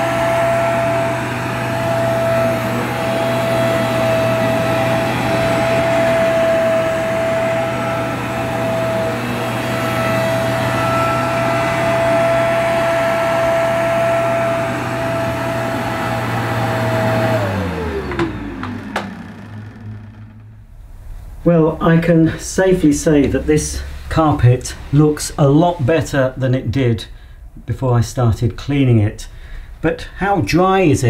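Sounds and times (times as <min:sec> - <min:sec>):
carpet washer motor whine: 0:00.0 - 0:20.8.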